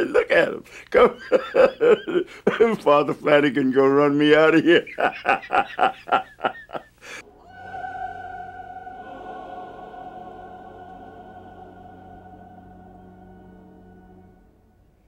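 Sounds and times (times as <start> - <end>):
man laughing heartily: 0.9 - 2.8, 4.6 - 7.2.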